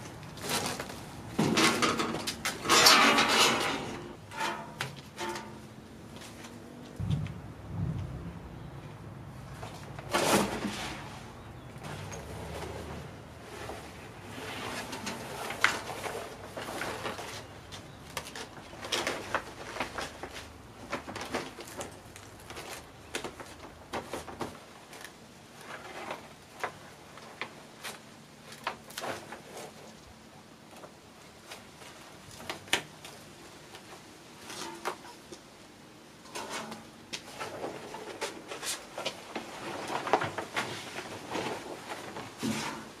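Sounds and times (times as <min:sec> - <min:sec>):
plastic sheet crinkling: 0:15.3 - 0:29.8.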